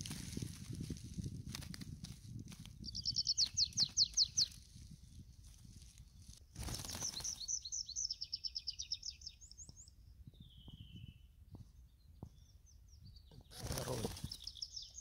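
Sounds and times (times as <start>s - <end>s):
bird singing: 2.8s - 5.3s, 6.2s - 15.0s.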